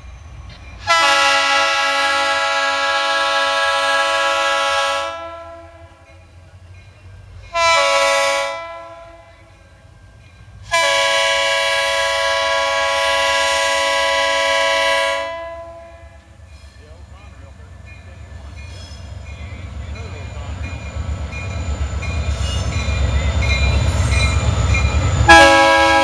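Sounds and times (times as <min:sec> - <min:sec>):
locomotive engine rumbling: 0:00.0 - 0:26.0
locomotive air horn blasts: 0:00.8 - 0:06.0, 0:07.5 - 0:09.3, 0:10.7 - 0:16.3, 0:25.2 - 0:26.0.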